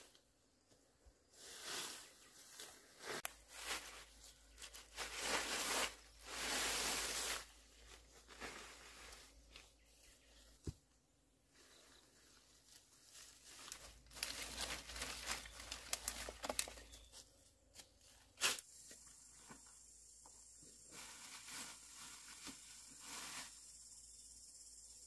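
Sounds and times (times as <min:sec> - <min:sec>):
dry grass rustling and crackling: 0:01.4 - 0:10.4, 0:11.6 - 0:17.2.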